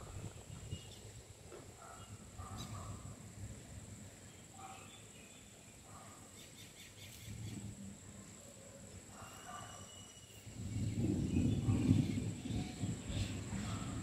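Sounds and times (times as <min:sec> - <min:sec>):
wind buffeting microphone: 0:00.0 - 0:04.2, 0:10.4 - 0:14.0
faint bird chirps: 0:04.2 - 0:07.7, 0:08.4 - 0:13.8.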